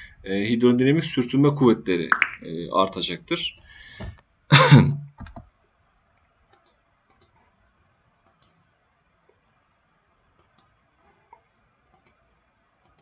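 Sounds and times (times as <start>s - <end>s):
faint computer mouse clicks: 6.5s - 7.4s, 8.2s - 8.6s, 10.4s - 12.2s.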